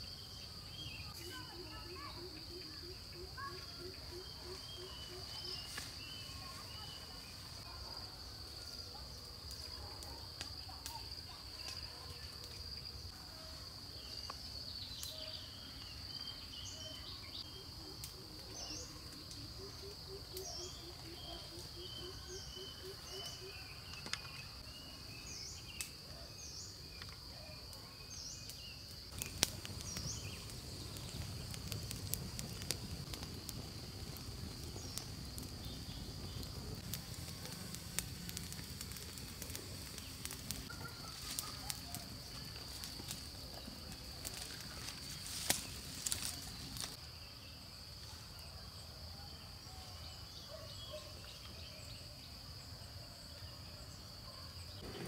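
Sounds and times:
short insect chirps: 28.1 - 47.6.

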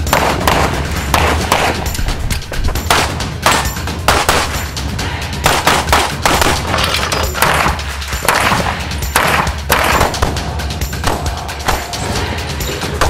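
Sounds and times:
handgun shots with echo: 5.4 - 10.4.

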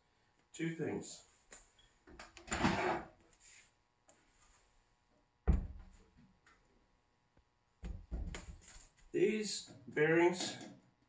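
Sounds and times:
steel tube thumping on wooden floor: 5.5 - 6.0, 7.8 - 8.6.

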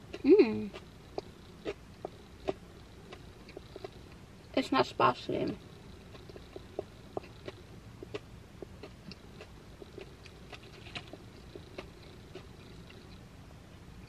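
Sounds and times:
person chewing: 0.0 - 4.2, 5.8 - 13.2.

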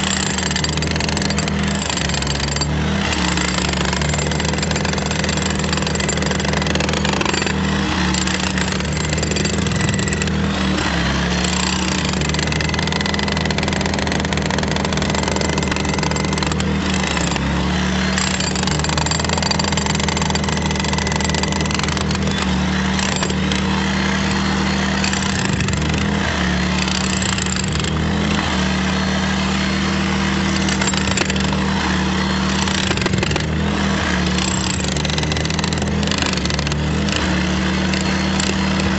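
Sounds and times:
generator engine drone: 0.0 - 38.9
power tool drilling concrete: 0.0 - 38.9.

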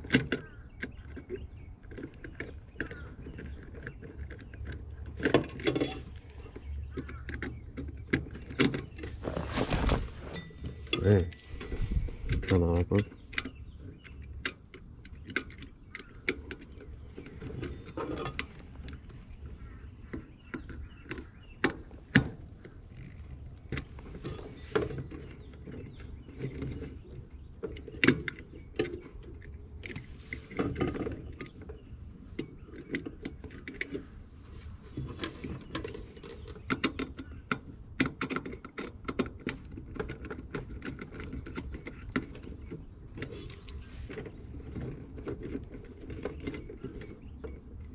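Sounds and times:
clicks and taps of wiring: 35.0 - 47.9.

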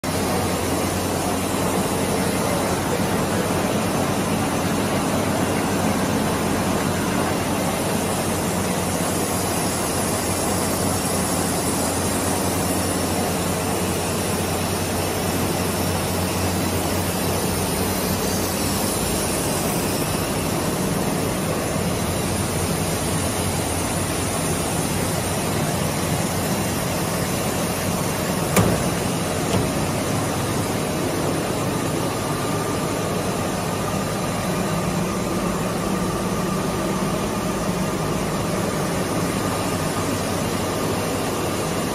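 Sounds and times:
steady machine noise: 0.0 - 40.7
sharp knock: 28.5 - 29.9.

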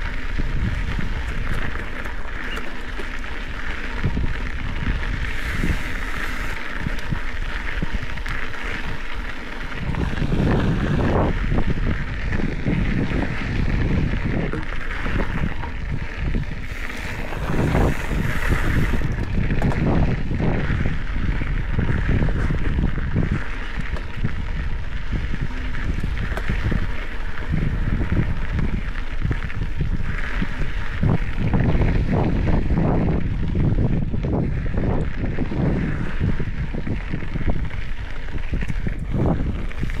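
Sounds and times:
mountain bike rattling on dirt trail: 0.0 - 40.0
wind noise on microphone: 0.0 - 40.0.

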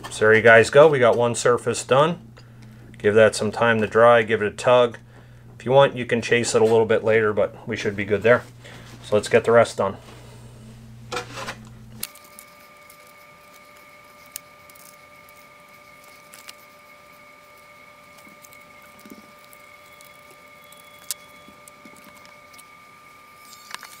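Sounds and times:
faint high-pitched whine: 12.0 - 24.0.

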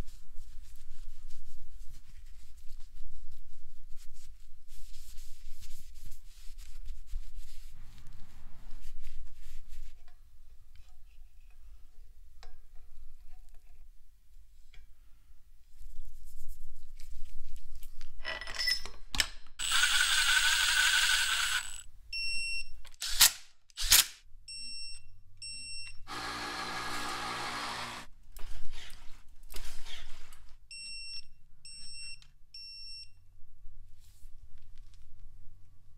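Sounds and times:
whirring hissing tool: 19.6 - 21.8, 26.1 - 28.1.

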